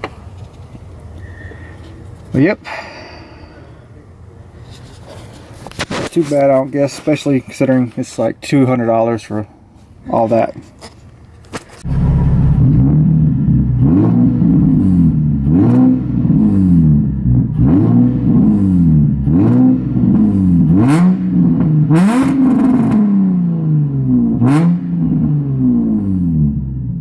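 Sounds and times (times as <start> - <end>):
car engine revving: 11.8 - 26.9.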